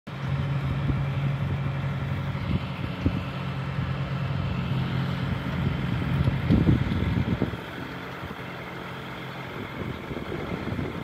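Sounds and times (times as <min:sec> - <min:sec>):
boat hoist engine humming: 0:00.1 - 0:11.0.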